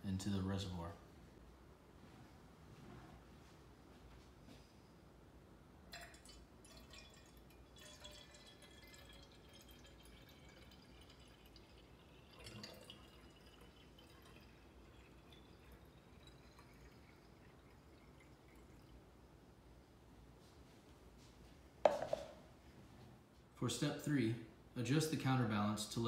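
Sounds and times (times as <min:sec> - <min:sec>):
water pouring into a reservoir: 0:05.9 - 0:19.1
knock: 0:21.9 - 0:22.4.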